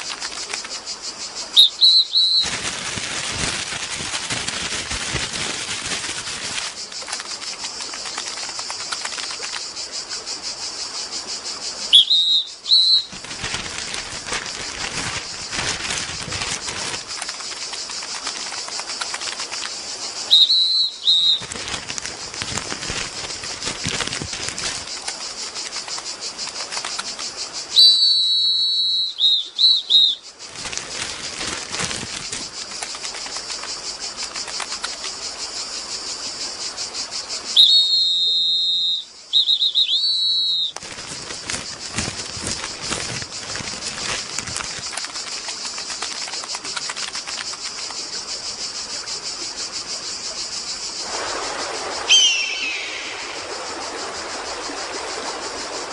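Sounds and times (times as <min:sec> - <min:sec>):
high whistled chirps: 0:01.4 - 0:02.5, 0:11.8 - 0:14.2, 0:20.2 - 0:21.6, 0:27.7 - 0:30.3, 0:37.5 - 0:40.8, 0:51.9 - 0:54.7.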